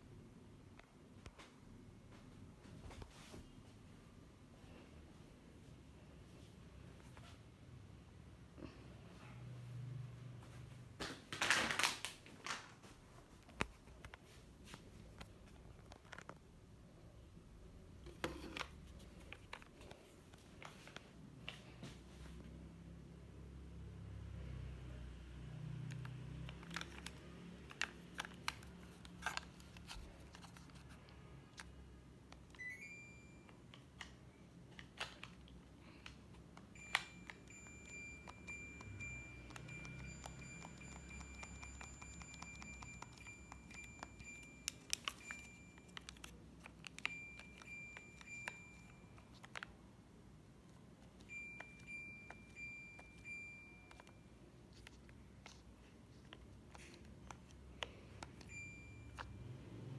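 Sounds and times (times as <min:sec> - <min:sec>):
air conditioner high steady tone: 0:00.0 - 0:59.9
remote control buttons clicking: 0:34.8 - 0:49.7.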